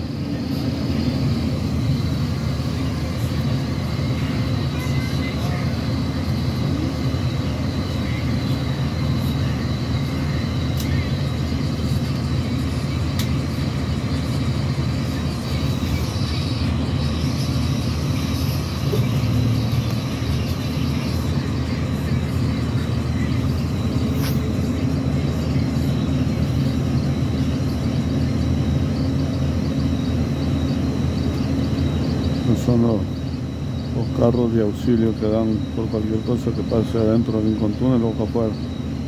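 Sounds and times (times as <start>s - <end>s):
bus engine and road rumble: 0.0s - 39.0s
faint high whine: 0.0s - 39.0s.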